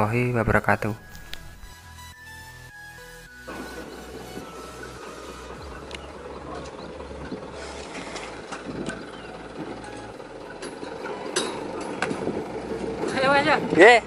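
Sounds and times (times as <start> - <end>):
metallic knocks and clanks: 8.5 - 13.3.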